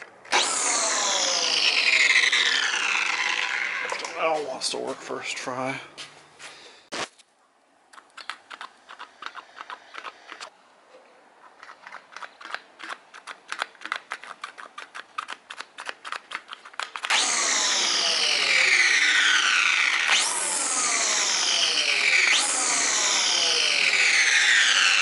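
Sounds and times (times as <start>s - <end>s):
trimmer motor whining: 0.3s - 4.4s, 17.1s - 25.0s.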